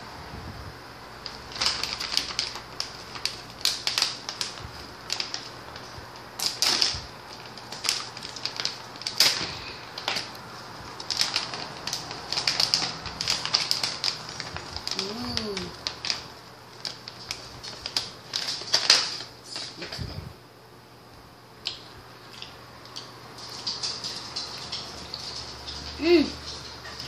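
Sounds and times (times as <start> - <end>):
plastic snack pouch crinkling: 1.2 - 19.9.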